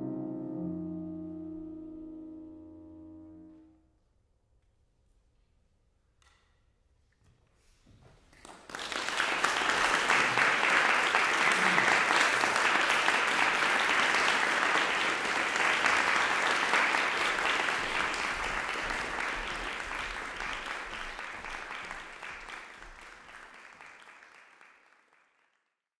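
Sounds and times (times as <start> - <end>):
audience applauding: 8.3 - 25.8.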